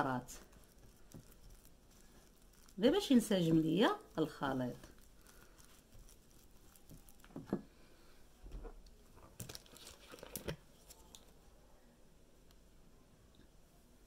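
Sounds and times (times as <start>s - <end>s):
plastic spoon stirring in bowl: 0.0s - 7.8s, 9.1s - 11.4s
plastic bottle crinkling: 0.1s - 7.7s, 9.1s - 11.4s.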